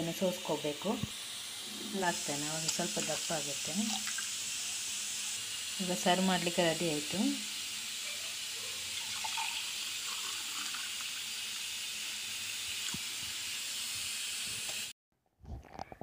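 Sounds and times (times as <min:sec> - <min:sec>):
juice pouring into a glass: 0:08.9 - 0:12.0.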